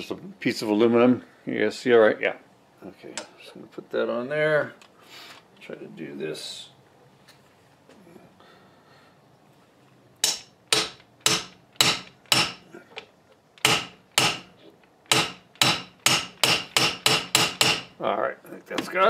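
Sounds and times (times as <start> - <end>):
mallet striking aluminum: 10.2 - 12.7, 13.6 - 14.5, 15.1 - 17.9.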